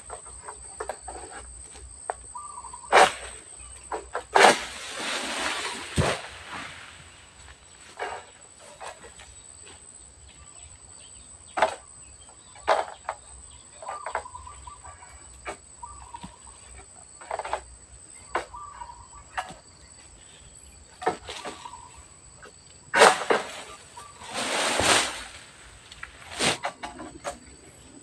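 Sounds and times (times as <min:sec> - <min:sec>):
bird chirps: 0:02.3 - 0:03.9, 0:10.4 - 0:15.2, 0:15.8 - 0:16.8, 0:18.2 - 0:20.0.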